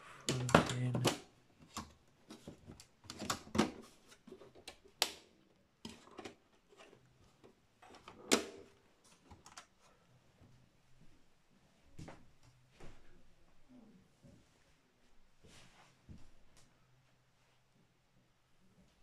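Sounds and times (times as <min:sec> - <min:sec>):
computer parts clicking and knocking: 0:00.3 - 0:01.2.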